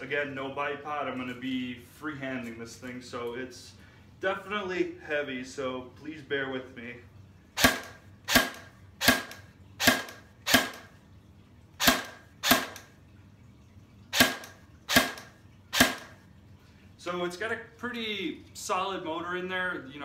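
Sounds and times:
airsoft rifle shots: 7.6 - 10.9, 11.8 - 12.8, 14.1 - 16.1.

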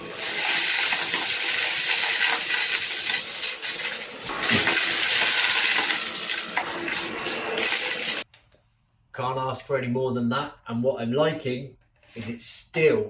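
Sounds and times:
vacuum cleaner running: 0.0 - 8.2
dry pasta rattling in vacuum: 0.2 - 8.2.

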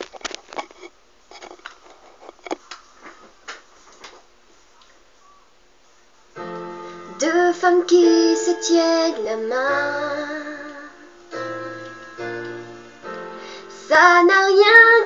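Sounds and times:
instrumental backing track: 6.4 - 15.0.

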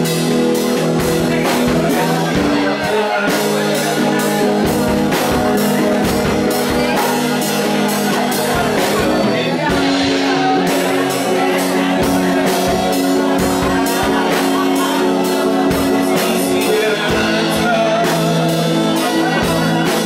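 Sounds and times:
drum kit beat: 0.0 - 20.0
electric guitar: 0.0 - 20.0.

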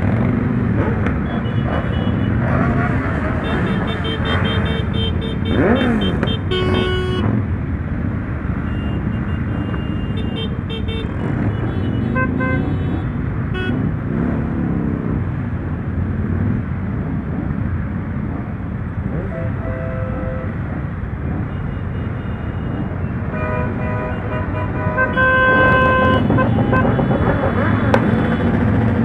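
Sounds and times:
motorcycle engines rumbling: 0.0 - 29.0
vehicle horns tooting: 1.2 - 7.4, 8.6 - 13.8, 19.1 - 20.6, 21.6 - 28.7.

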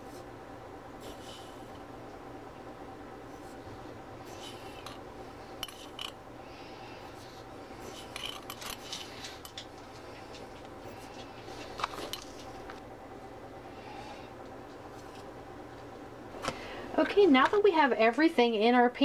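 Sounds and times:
faint steady hum: 0.0 - 19.0
teaspoon scraping and tapping: 5.6 - 6.2, 7.9 - 9.7.

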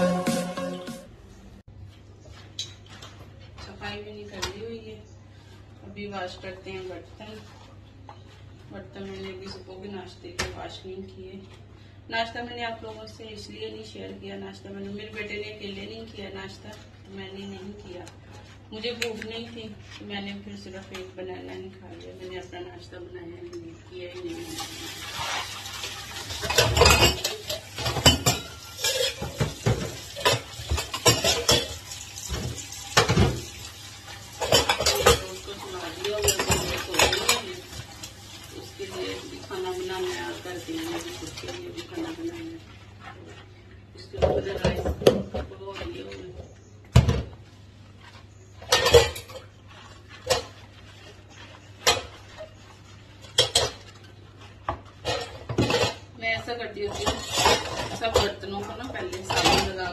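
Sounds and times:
dishes clattering in steel sink: 24.5 - 42.2, 48.6 - 50.6, 53.2 - 54.0, 54.7 - 56.1, 56.8 - 59.9
cups clattering into dish rack: 26.3 - 33.4.

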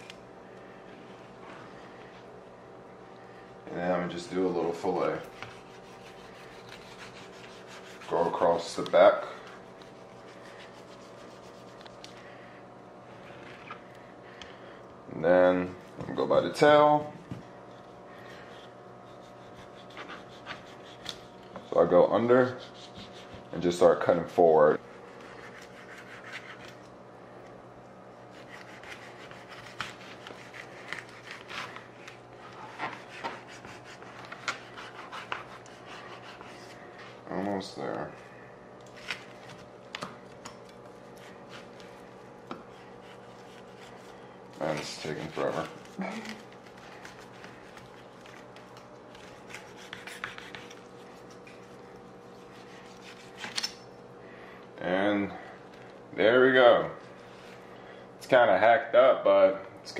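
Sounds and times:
steady low hum: 0.0 - 59.9
knife sawing through frozen fish: 4.3 - 11.8, 18.1 - 23.9, 24.8 - 26.9, 28.3 - 37.0, 40.9 - 53.7.

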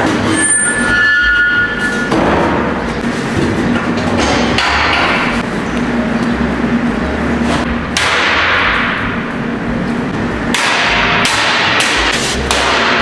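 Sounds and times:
hammer striking sheet steel: 4.2 - 5.4, 7.6 - 9.2, 10.4 - 13.0.

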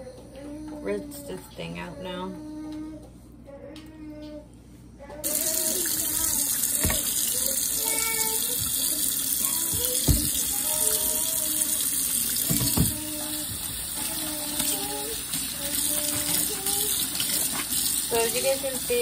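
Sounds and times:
water running into a steel sink: 5.2 - 19.0.

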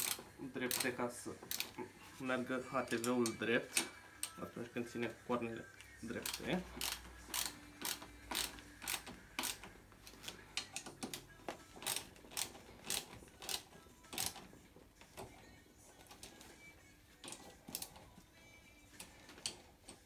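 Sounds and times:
ratchet wrench clicking: 0.0 - 1.7, 6.2 - 14.5, 17.2 - 18.0.

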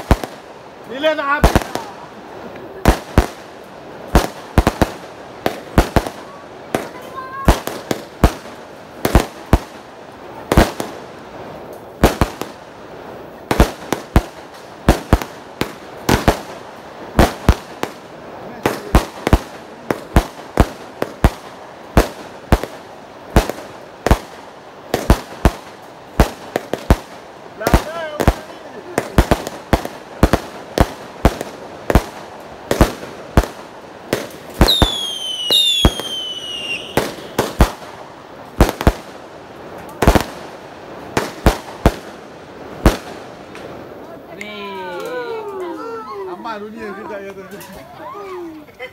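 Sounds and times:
fireworks bangs: 0.0 - 45.6
whistling fireworks falling whistles: 32.7 - 38.0.

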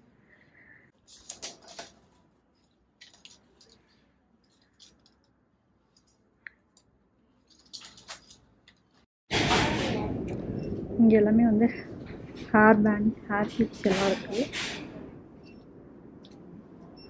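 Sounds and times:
faint clicks and rustles: 0.9 - 9.1.

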